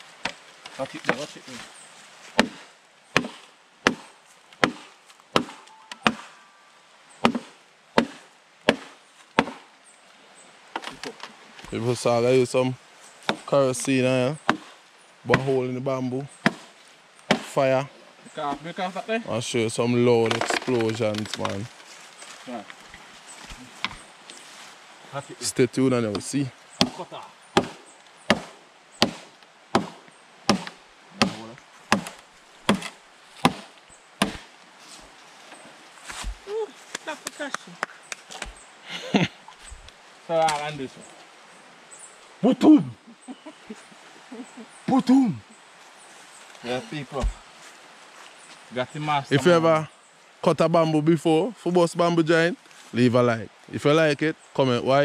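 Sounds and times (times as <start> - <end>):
chopping strikes on bamboo: 0.2 - 1.3, 2.3 - 6.3, 7.2 - 9.7, 13.2 - 13.5, 14.4 - 14.7, 15.3 - 15.6, 16.4 - 16.7, 17.3 - 17.6, 26.1 - 34.5, 36.1 - 37.0, 47.2 - 47.4.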